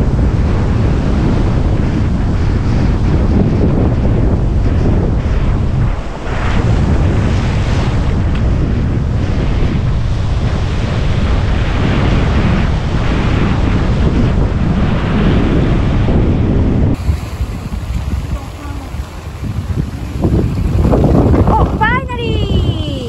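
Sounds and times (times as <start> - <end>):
wind buffeting microphone: 0.0 - 23.0
surf breaking on rocks: 17.0 - 23.0.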